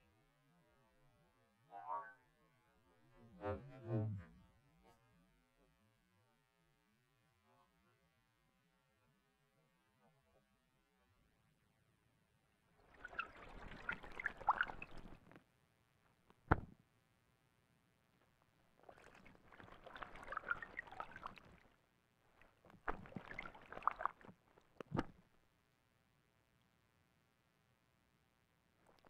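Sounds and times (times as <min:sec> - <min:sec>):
owl splashing in water: 0:12.8 - 0:15.2, 0:18.8 - 0:21.8, 0:22.4 - 0:25.2.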